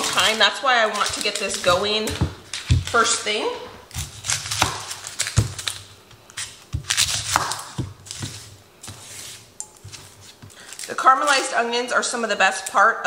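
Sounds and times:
onion skin crackling as peeled: 0.0 - 3.2, 3.8 - 11.5
knife cutting onion on board: 6.4 - 10.5.

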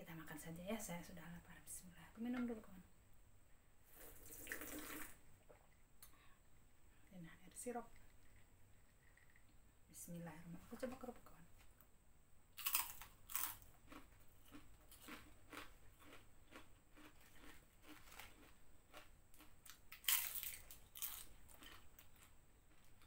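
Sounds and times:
crackers crunching: 12.6 - 23.0
crunchy chewing: 12.6 - 23.0.

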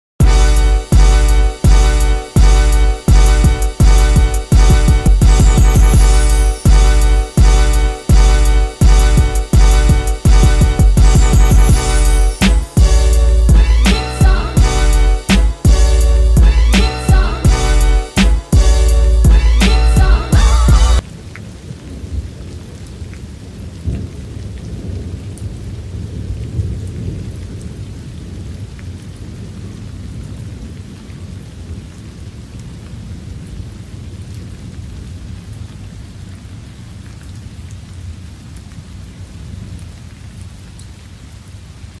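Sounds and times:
steady rain: 0.2 - 42.0
low rumble of thunder: 21.1 - 35.5.

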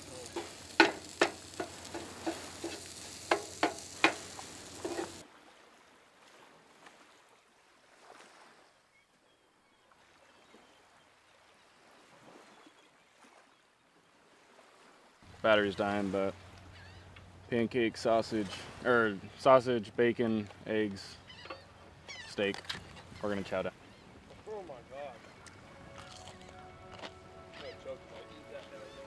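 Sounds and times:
food sizzling on a griddle: 0.0 - 5.2
metal spatula scraping griddle: 0.2 - 5.2.

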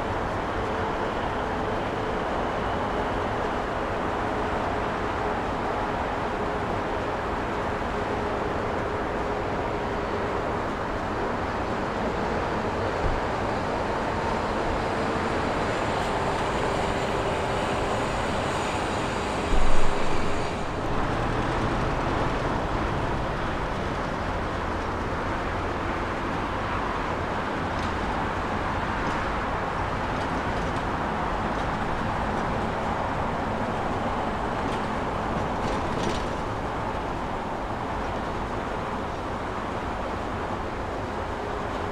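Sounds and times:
jet engines rumbling: 11.4 - 25.0.

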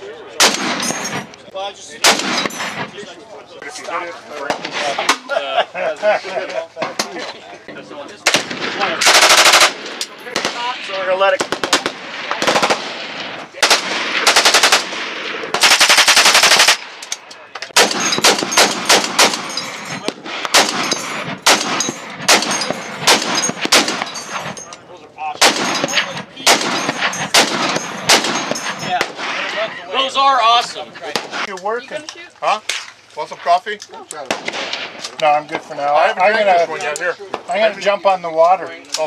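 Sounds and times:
heavy machine gun firing: 8.3 - 10.8, 11.4 - 16.8, 17.8 - 24.2, 25.4 - 29.4
automatic gunfire bursts: 9.0 - 9.8, 11.4 - 13.0, 13.6 - 16.8, 17.8 - 19.5, 20.3 - 24.1, 25.4 - 28.6.

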